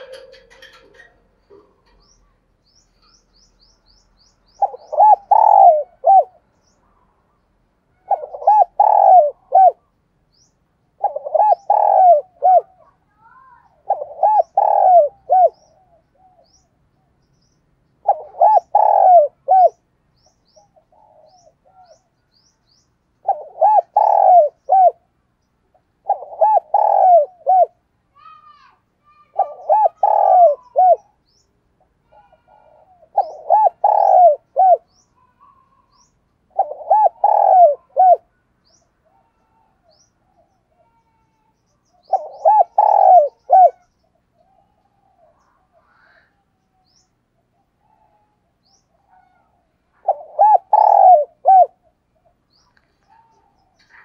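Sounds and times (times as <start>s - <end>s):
dove cooing: 0.0s - 2.2s, 4.6s - 6.4s, 8.0s - 9.9s, 11.0s - 16.5s, 18.0s - 19.8s, 20.6s - 22.1s, 23.2s - 25.0s, 26.0s - 27.8s, 29.3s - 31.2s, 32.0s - 35.9s, 36.5s - 38.3s, 42.0s - 43.9s, 49.0s - 52.4s, 53.0s - 54.0s
small birds chirping: 0.0s - 54.0s.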